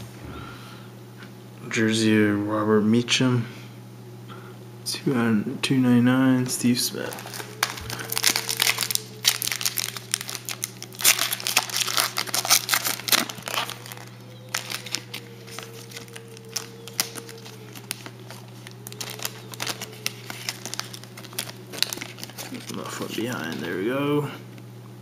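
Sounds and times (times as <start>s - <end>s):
foil wrapper crinkling: 6.6s - 24.0s.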